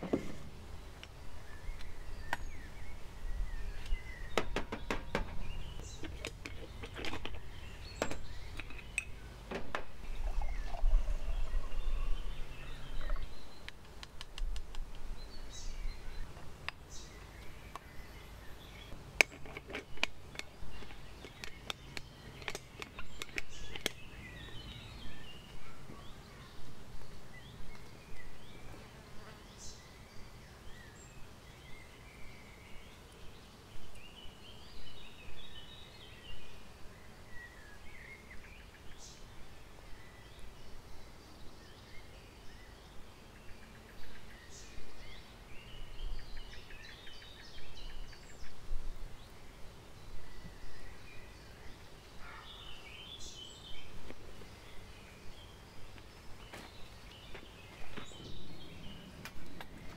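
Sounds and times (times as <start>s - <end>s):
birds chirping: 0.0s - 59.9s
clinks of coffee gear handled: 8.0s - 9.2s.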